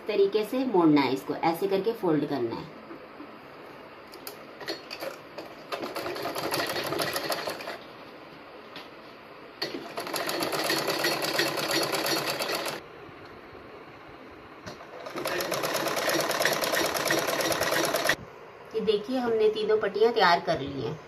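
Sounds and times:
sewing machine stitching: 5.7 - 7.8, 9.6 - 12.8, 14.9 - 18.2.

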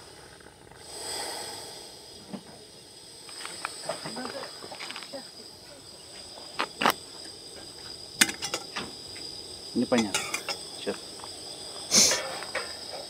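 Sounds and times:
short hiss: 0.0 - 5.2, 11.8 - 12.8
insects shrilling: 0.0 - 13.0.

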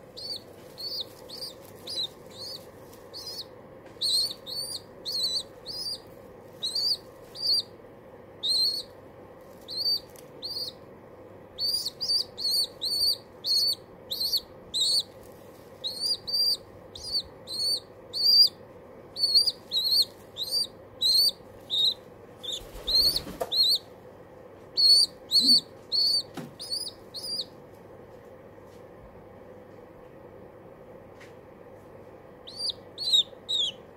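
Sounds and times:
pigeon squab squeaking: 0.0 - 7.8, 8.4 - 9.0, 9.6 - 10.8, 11.6 - 15.2, 15.8 - 23.9, 24.7 - 27.6, 32.4 - 33.9.

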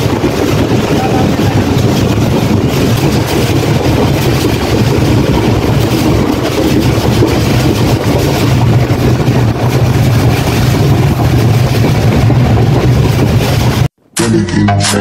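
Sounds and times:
rushing air: 0.0 - 14.0
train wheels rumbling on track: 0.0 - 14.0.

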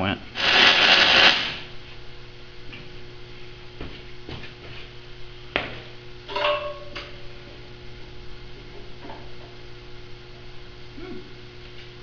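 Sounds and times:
steady electrical hum: 0.0 - 12.0
ringing steel clank: 6.3 - 7.1.

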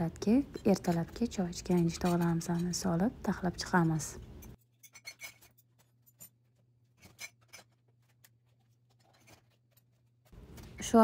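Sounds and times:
dishes and glass jars clinking: 0.2 - 6.4, 7.0 - 7.8.

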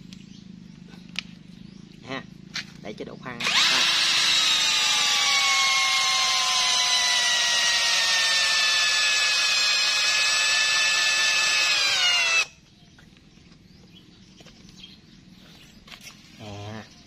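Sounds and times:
cordless drill driving screw into wood: 3.4 - 12.6.

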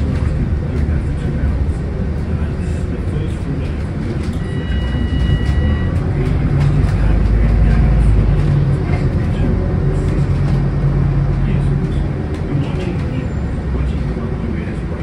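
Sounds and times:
bus engine and road noise: 0.0 - 15.0
electronic beep: 4.4 - 5.9.

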